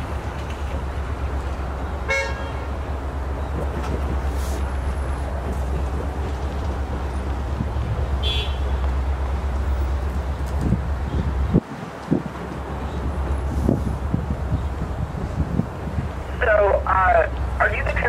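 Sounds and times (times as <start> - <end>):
street traffic rumble: 0.0 - 18.0
car horn toot: 2.1 - 2.6, 8.2 - 8.8.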